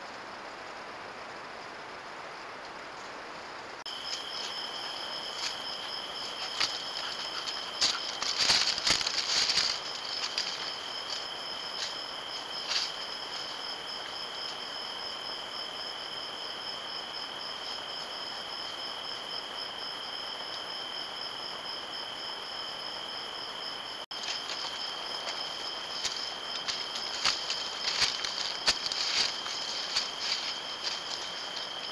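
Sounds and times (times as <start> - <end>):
crickets trilling: 0.0 - 31.9
rustling in dry leaves: 3.9 - 15.5, 24.1 - 31.9.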